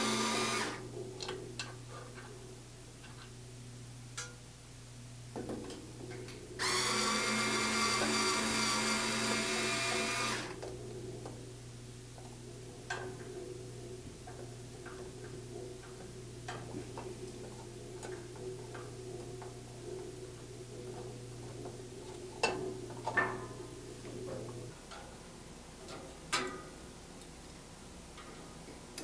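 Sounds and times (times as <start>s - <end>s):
power screwdriver whining: 0.0s - 0.8s, 6.6s - 10.6s
faint steady hum: 0.0s - 29.0s.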